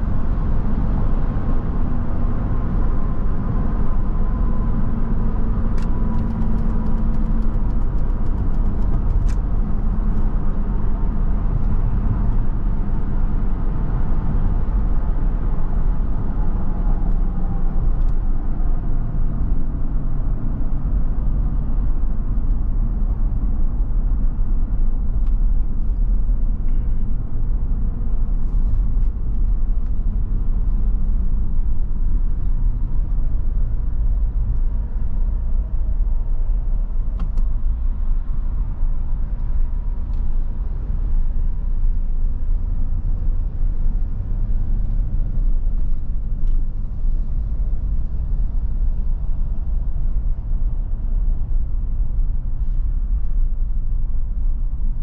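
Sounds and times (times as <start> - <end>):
truck engine and road rumble: 0.0 - 55.0.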